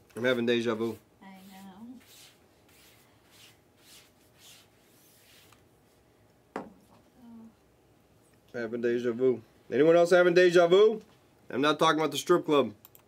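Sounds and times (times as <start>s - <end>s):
cards rubbing and sliding: 0.3s - 5.6s.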